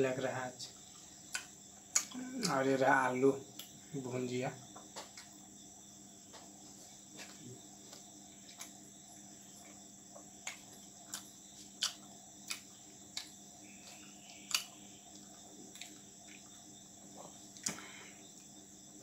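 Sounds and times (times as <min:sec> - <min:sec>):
crickets chirping: 0:00.0 - 0:19.0
person chewing with wet smacks: 0:00.9 - 0:02.6, 0:07.1 - 0:08.9, 0:09.5 - 0:18.6.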